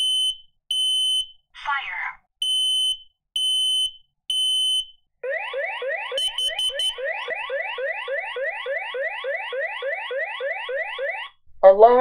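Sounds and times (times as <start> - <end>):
smoke alarm beeps: 0.0 - 1.4, 2.4 - 11.3
rising siren sweep: 5.2 - 11.3.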